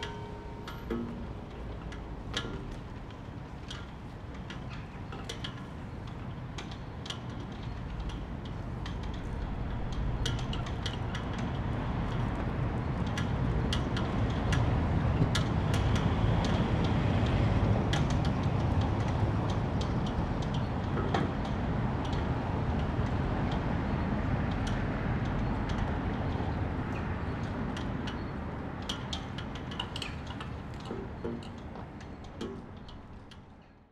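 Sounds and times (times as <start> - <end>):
vehicle passing with low rumble: 8.7 - 20.8.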